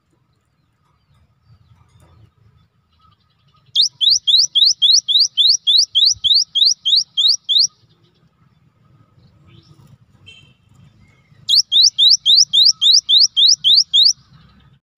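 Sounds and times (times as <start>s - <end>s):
bird whistling rising notes: 3.8s - 7.8s, 11.4s - 14.2s.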